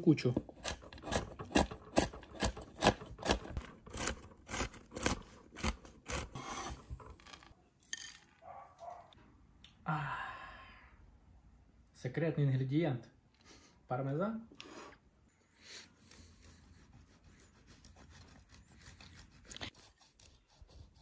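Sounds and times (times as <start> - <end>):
knife scraping board: 0.4 - 8.1.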